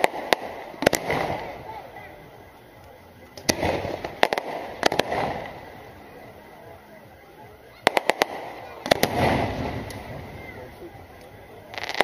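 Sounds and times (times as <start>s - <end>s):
firework shells bursting: 0.0s - 1.7s, 2.8s - 6.0s, 7.8s - 10.4s, 11.0s - 12.0s.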